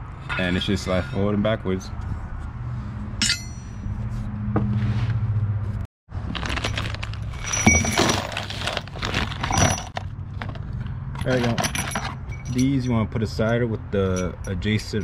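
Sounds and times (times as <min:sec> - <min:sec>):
sharp ringing ping: 0:03.2 - 0:03.8
metal bolts clinking and rattling: 0:06.6 - 0:15.0.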